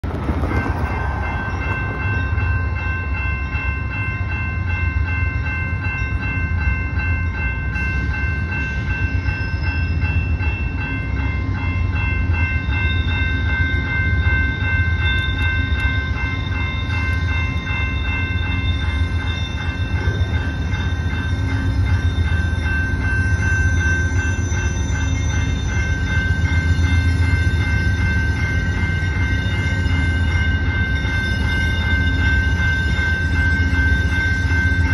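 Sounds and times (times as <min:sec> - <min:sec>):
diesel locomotive rumble: 0:00.0 - 0:34.9
railroad crossing bell ringing: 0:00.0 - 0:34.9.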